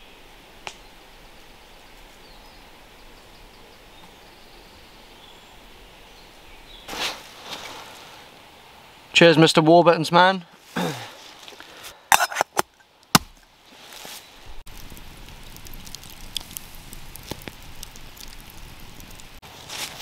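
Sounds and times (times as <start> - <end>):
campfire embers crackling: 0.2 - 2.8, 11.0 - 20.0.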